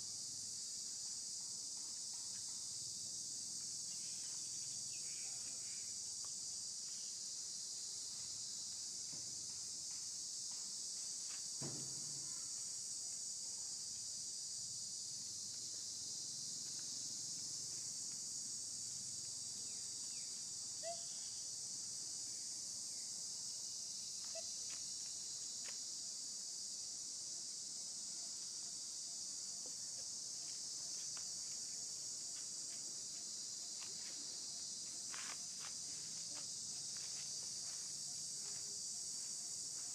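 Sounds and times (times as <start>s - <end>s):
insect chorus buzzing: 0.0s - 39.9s.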